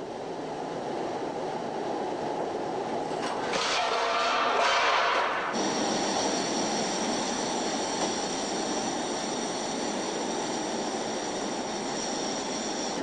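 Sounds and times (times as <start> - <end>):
gas burners roaring: 3.2 - 13.0.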